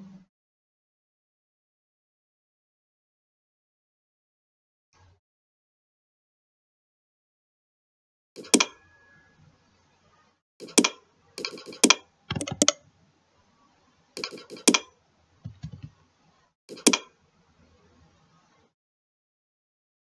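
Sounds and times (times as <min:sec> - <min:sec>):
computer keyboard typing: 0:08.4 - 0:08.7, 0:10.6 - 0:12.8, 0:14.2 - 0:14.9, 0:16.7 - 0:17.1
mouse clicks: 0:08.4 - 0:08.7, 0:10.6 - 0:12.8, 0:14.2 - 0:14.9, 0:16.7 - 0:17.1.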